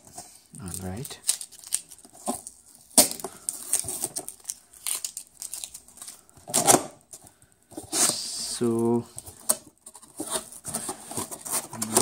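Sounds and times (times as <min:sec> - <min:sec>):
cardboard box crinkling and tearing: 0:00.6 - 0:06.9, 0:09.4 - 0:12.0.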